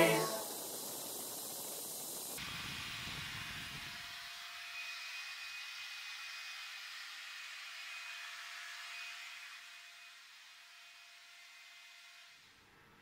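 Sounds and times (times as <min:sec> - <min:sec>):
faint steady whine: 0:00.0 - 0:05.1.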